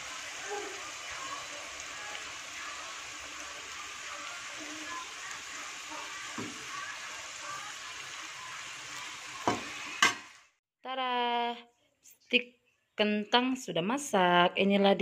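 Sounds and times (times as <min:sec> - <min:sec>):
food sizzling in hot oil: 0:00.0 - 0:10.6.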